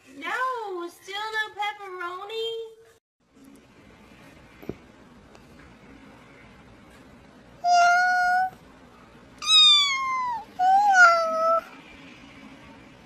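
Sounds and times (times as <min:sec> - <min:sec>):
cat meowing: 0:07.6 - 0:08.6, 0:09.4 - 0:11.7.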